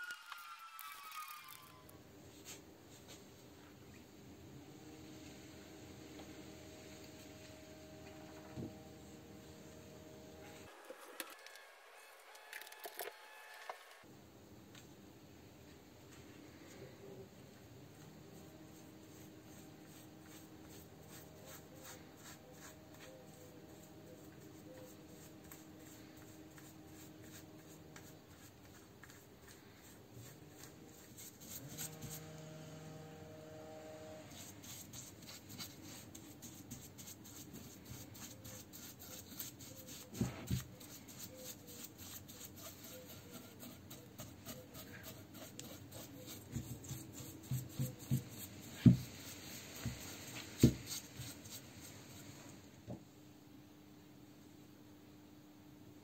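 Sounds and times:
brush scrubbing metal: 18.0s - 32.4s, 34.3s - 52.3s.

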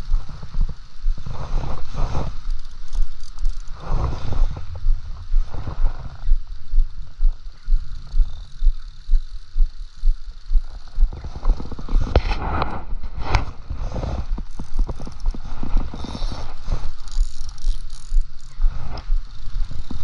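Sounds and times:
low rhythmic thumps: 0.0s - 13.1s, 14.2s - 20.0s
fishing reel clicks and knocks: 2.4s - 3.9s, 6.3s - 12.8s, 14.3s - 20.0s.

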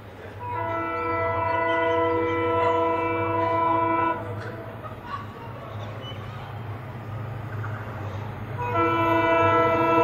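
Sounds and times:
diesel engines rumbling: 0.0s - 10.0s
locomotive air horn: 0.4s - 4.3s, 8.6s - 10.0s.

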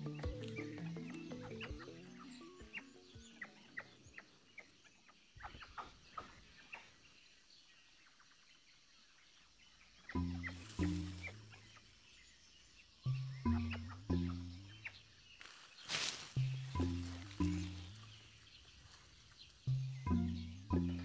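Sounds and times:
soft background music: 0.0s - 4.6s, 10.2s - 11.9s, 12.9s - 19.0s, 19.7s - 21.0s
rainforest ambience: 0.0s - 21.0s.

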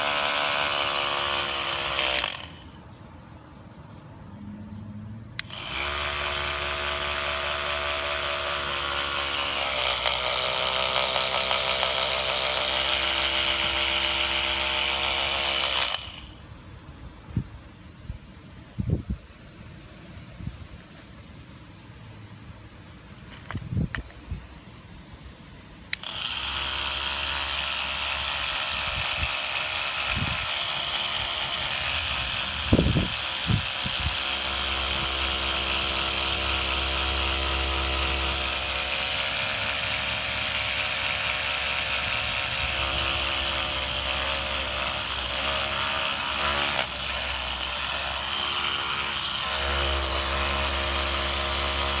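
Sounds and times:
small electric motor whining: 0.0s - 2.9s, 5.4s - 16.4s, 25.9s - 52.0s.

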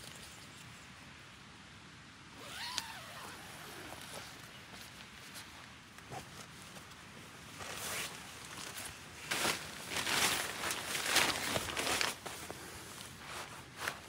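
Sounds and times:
groundsheet rustling and crinkling: 3.0s - 14.0s.

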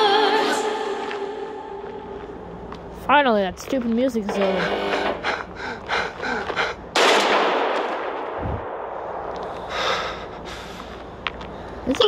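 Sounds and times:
loud gunshot: 7.0s - 9.2s.

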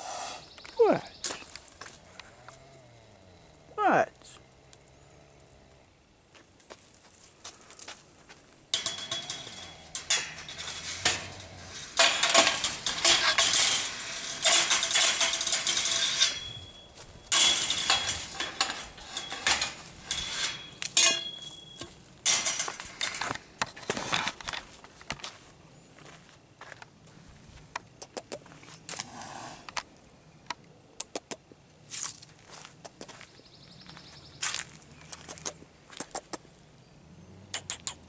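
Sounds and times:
metal clattering against cage fencing: 8.7s - 24.4s.

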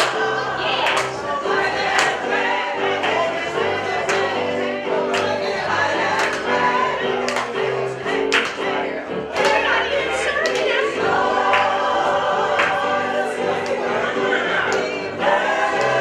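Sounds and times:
group singing gospel song: 0.0s - 16.0s
hand claps: 0.8s - 2.3s, 3.0s - 4.4s, 5.1s - 5.4s, 6.1s - 6.7s, 7.3s - 9.8s, 10.4s - 10.9s, 12.6s - 12.8s.

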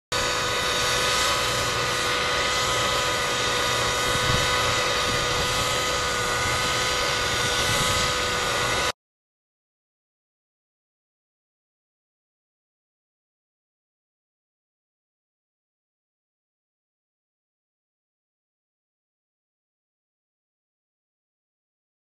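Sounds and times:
model helicopter engine whine: 0.1s - 9.0s.

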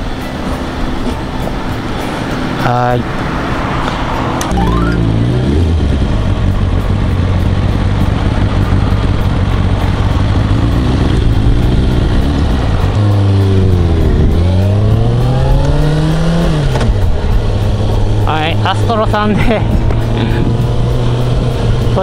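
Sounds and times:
motorcycle engine running: 4.6s - 18.5s.

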